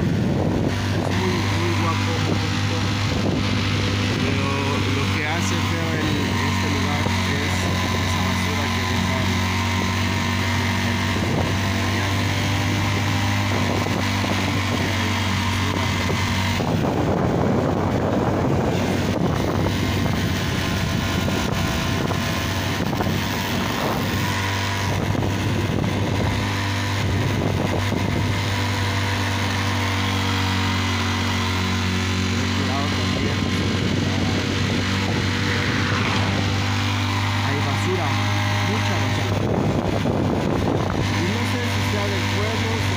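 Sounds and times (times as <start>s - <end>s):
motorcycle engine cruising: 0.0s - 42.9s
loud rushing noise: 31.7s - 42.0s.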